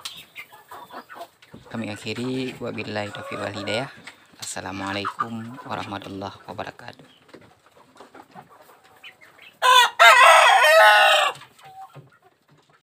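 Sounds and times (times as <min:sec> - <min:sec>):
rooster crowing: 0:09.6 - 0:11.4.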